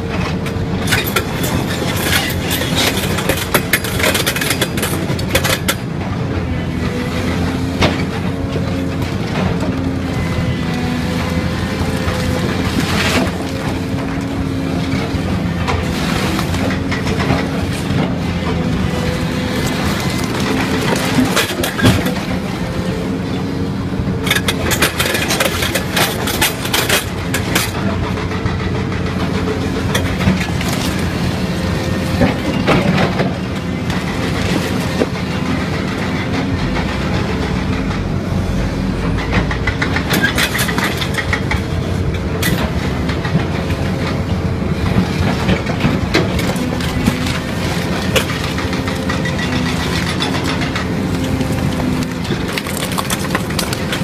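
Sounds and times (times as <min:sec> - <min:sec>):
excavator engine and hydraulic drone: 0:00.0 - 0:54.0
rock cracking and clattering: 0:45.3 - 0:54.0.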